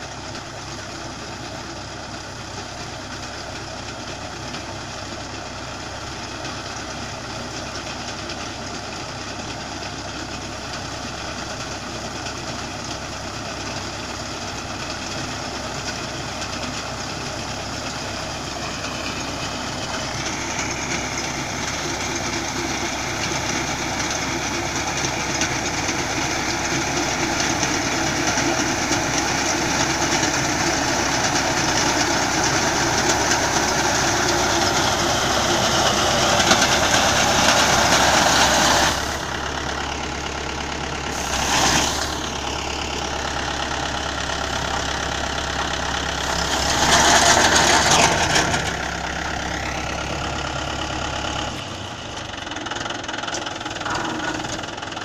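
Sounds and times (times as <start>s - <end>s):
tractor diesel engine under load: 0.0s - 55.0s
high-pitched hissing: 41.1s - 42.2s.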